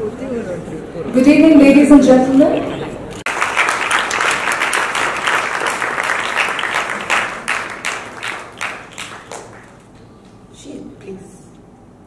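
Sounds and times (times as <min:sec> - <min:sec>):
audience applauding: 0:03.3 - 0:10.0.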